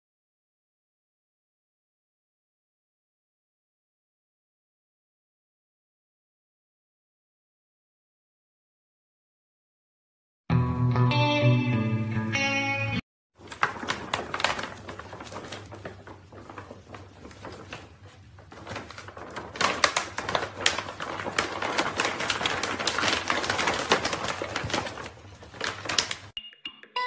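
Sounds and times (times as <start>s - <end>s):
crinkling foil bag: 13.4s - 26.4s.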